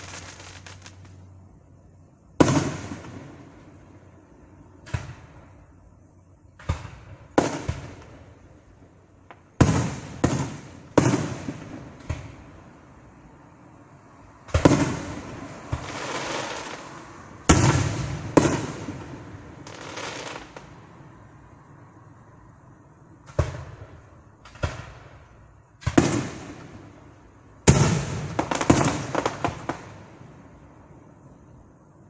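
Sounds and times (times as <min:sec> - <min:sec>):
fireworks booming: 0:00.0 - 0:01.2, 0:02.4 - 0:03.8, 0:04.8 - 0:05.6, 0:06.6 - 0:08.4, 0:09.3 - 0:12.6, 0:14.5 - 0:20.8, 0:23.2 - 0:30.4.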